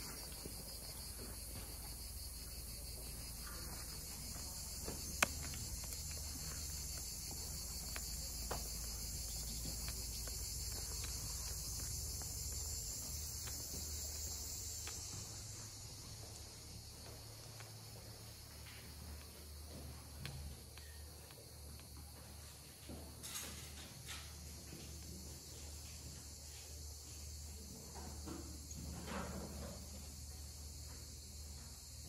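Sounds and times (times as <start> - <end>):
insects buzzing: 0.0 - 22.4, 23.9 - 32.0.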